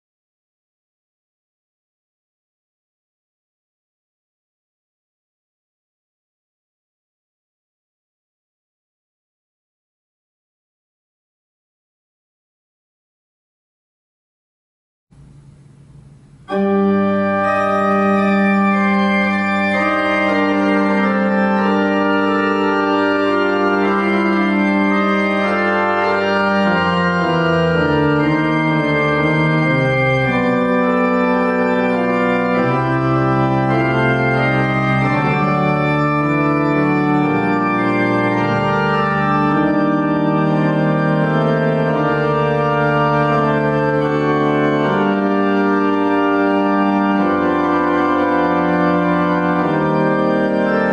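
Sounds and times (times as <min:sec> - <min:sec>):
church organ chords: 0:15.2 - 0:50.9.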